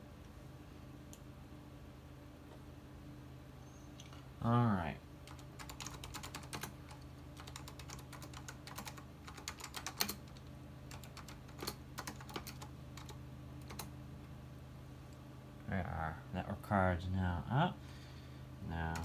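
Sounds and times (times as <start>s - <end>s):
steady low hum: 0.0s - 19.0s
keyboard typing: 5.2s - 13.9s.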